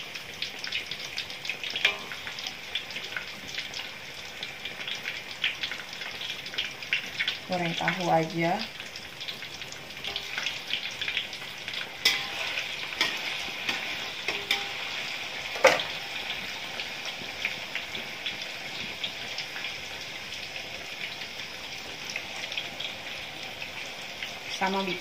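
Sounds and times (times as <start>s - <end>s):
tofu sizzling in oil: 0.0s - 25.0s
metal spatula clinking on wok: 1.8s - 2.3s, 12.0s - 14.8s.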